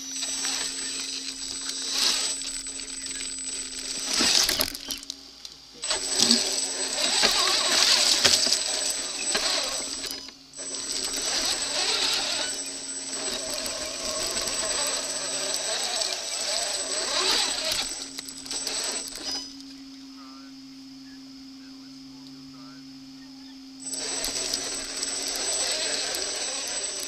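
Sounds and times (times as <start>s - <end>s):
chassis and tyres crunching leaves: 0.0s - 19.6s
rc car motor whine: 0.0s - 27.0s.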